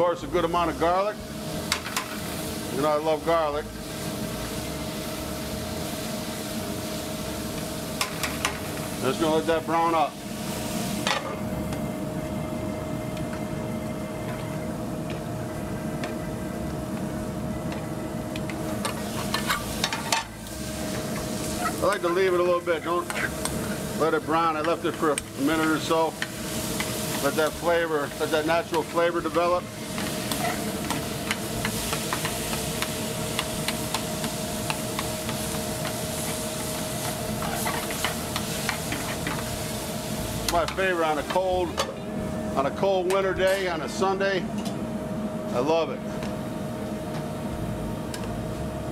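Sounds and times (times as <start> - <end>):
gas burners rumbling: 0.0 - 48.9
steady hum: 0.0 - 48.9
chicken sizzling in skillet: 18.9 - 41.3.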